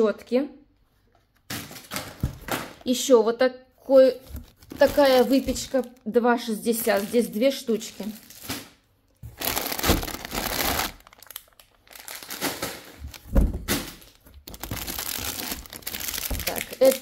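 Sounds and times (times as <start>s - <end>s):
plastic packaging crinkling: 4.1s - 17.0s.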